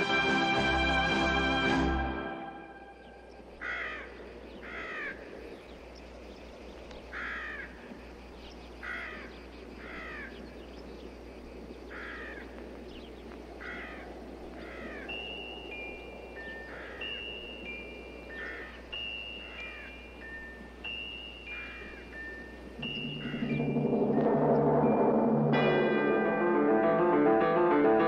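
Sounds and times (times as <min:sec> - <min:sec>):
crow cawing: 0:03.6 - 0:05.4, 0:07.1 - 0:07.8, 0:08.8 - 0:10.4, 0:11.9 - 0:12.6, 0:13.6 - 0:15.2, 0:16.6 - 0:17.2, 0:18.3 - 0:20.0, 0:21.5 - 0:22.1, 0:23.0 - 0:23.7.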